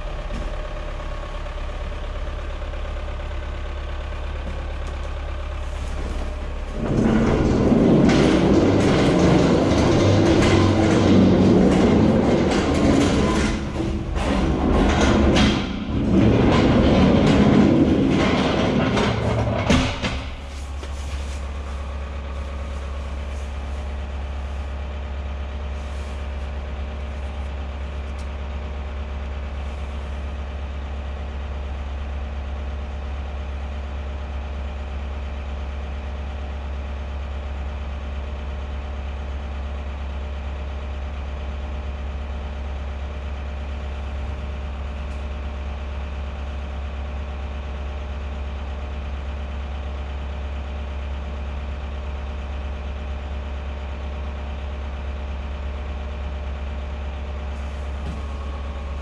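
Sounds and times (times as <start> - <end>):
engine idling: 0.0 - 59.0.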